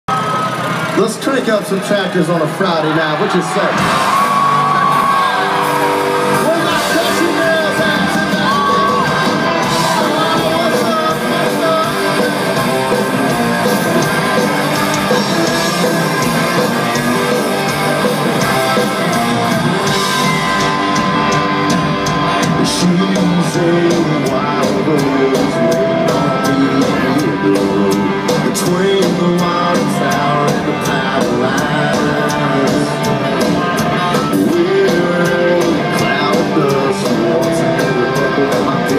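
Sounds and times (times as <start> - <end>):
country band playing: 0.1 - 38.9
man singing and shouting: 6.3 - 20.3, 22.0 - 38.9.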